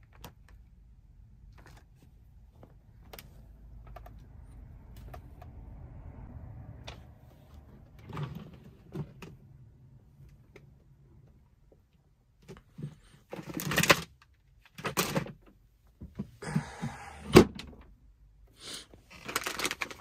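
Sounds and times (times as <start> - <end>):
plastic packs rustling: 19.1 - 20.0.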